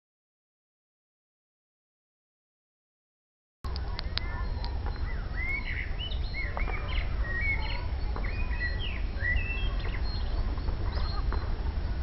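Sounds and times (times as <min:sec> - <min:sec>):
songbirds singing and chirping: 0:03.7 - 0:12.0
steady low rumble: 0:03.7 - 0:12.0.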